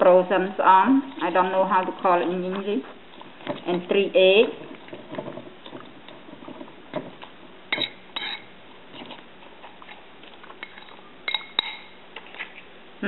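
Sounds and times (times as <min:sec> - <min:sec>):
utensil stirring wet mixture: 0:00.0 - 0:12.8
utensil clinking on ceramic bowl: 0:07.7 - 0:08.5, 0:10.6 - 0:12.0.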